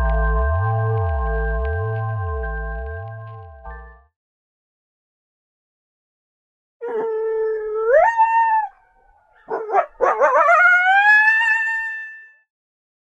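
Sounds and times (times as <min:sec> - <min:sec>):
coyote howling: 0:06.8 - 0:08.7, 0:09.5 - 0:12.2.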